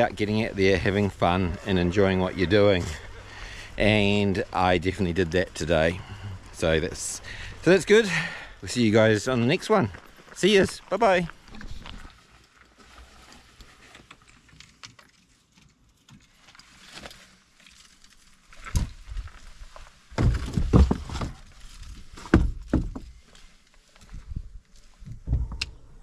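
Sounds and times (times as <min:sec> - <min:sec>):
dull thumps and knocks: 0:20.1 - 0:21.5, 0:22.2 - 0:23.2.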